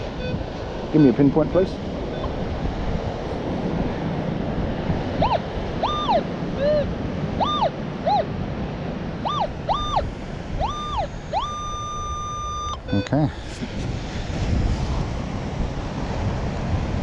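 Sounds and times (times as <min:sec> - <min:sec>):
surf and wind hiss: 0:00.0 - 0:17.0
metal detector tones: 0:05.2 - 0:08.2, 0:09.2 - 0:13.4.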